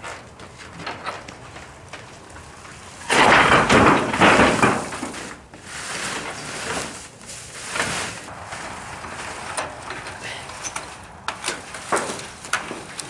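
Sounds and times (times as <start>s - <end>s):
wooden door crashing to ground: 3.0s - 5.4s
knocks and scraping of door: 3.1s - 6.9s.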